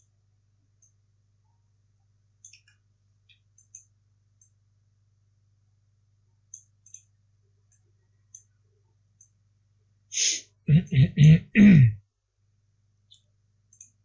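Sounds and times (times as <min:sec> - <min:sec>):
faint low hum: 0:00.0 - 0:14.0
computer mouse clicking: 0:02.4 - 0:04.6, 0:06.5 - 0:07.1, 0:09.2 - 0:09.4, 0:13.1 - 0:14.0.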